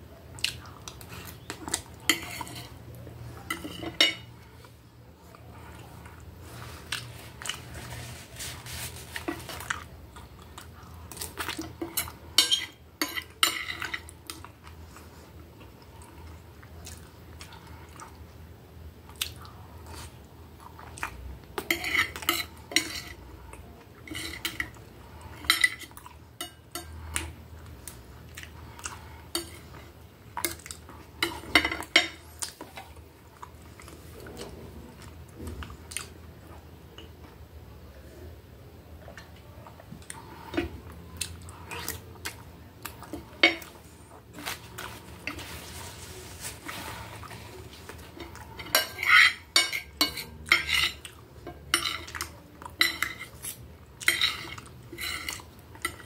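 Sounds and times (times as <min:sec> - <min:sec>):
cutlery clinking on a plate: 0:11.8 - 0:14.0, 0:48.2 - 0:53.3.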